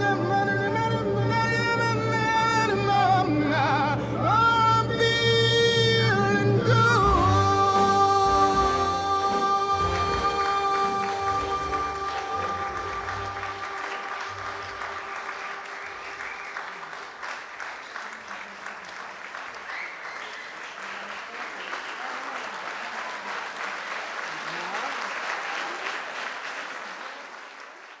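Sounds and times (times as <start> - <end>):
audience applauding: 9.3 - 28.0
people cheering: 9.9 - 28.0.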